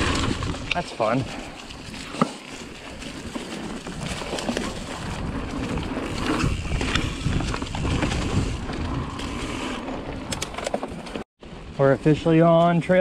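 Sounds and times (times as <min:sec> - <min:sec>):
bike tyres rumbling on dirt: 0:00.0 - 0:11.9
bike clicks and knocks: 0:01.9 - 0:11.2
wind on microphone: 0:03.3 - 0:10.6.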